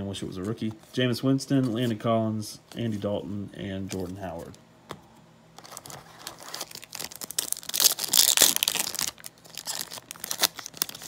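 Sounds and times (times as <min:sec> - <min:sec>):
wrapper tearing and crinkling: 0:05.6 - 0:11.0.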